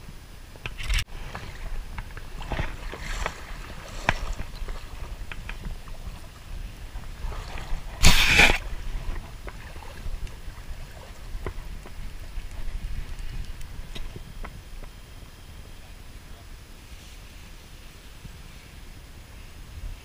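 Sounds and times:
creek water splashing: 0.8 - 14.9
loud water splash: 7.0 - 9.0.

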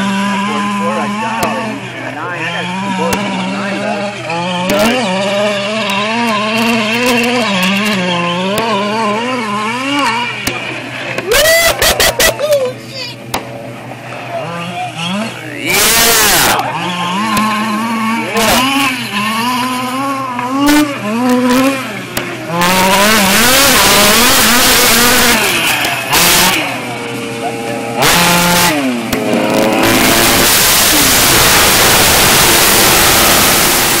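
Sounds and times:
toy truck engine revving: 0.0 - 13.2, 14.4 - 34.0
loud rushing noise: 21.7 - 34.0.

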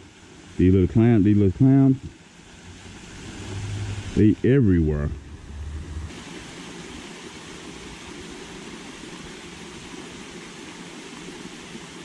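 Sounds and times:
outdoor rushing ambience: 2.1 - 6.5.

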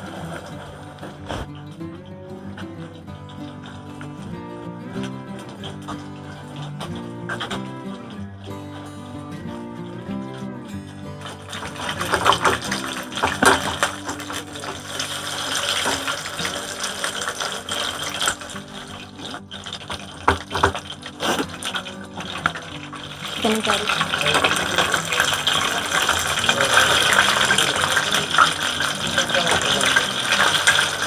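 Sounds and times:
chicken sizzling in hot oil: 10.8 - 31.0.

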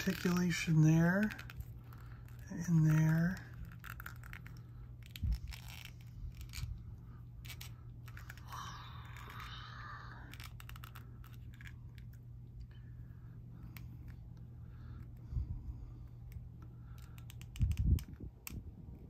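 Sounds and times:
plastic scraping rub: 0.0 - 9.6.

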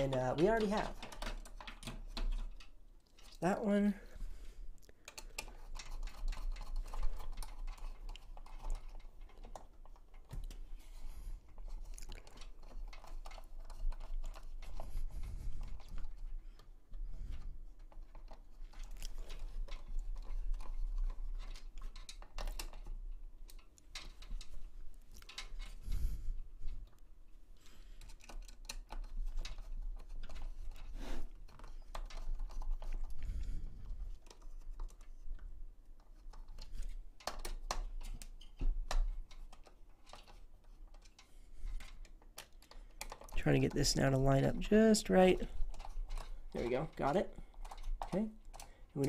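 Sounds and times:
small plastic and metal clicks: 27.9 - 44.0, 45.1 - 49.0.

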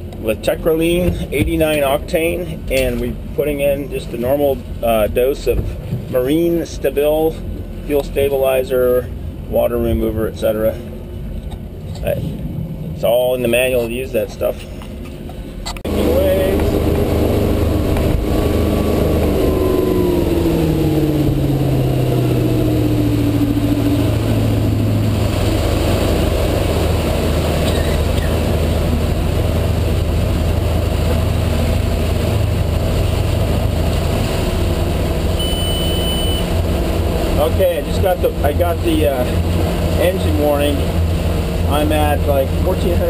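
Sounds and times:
boat engine running: 0.0 - 43.0
water noise: 0.0 - 43.0
high electronic beep: 35.4 - 36.5.

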